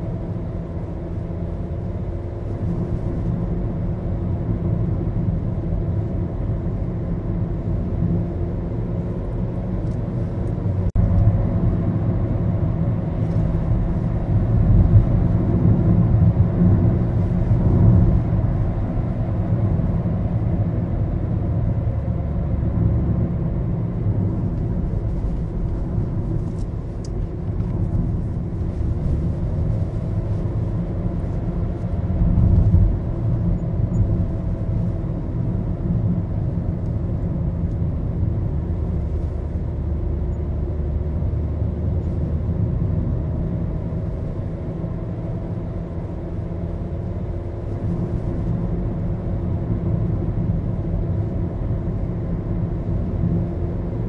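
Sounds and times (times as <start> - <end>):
car engine and road noise rumble: 0.0 - 54.0.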